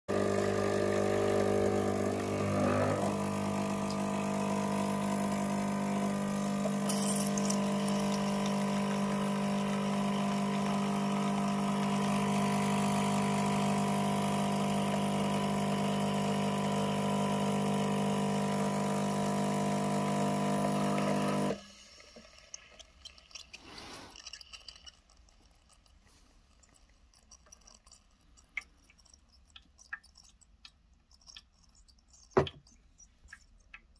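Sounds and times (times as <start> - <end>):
espresso machine pump humming: 0.1 - 22.9.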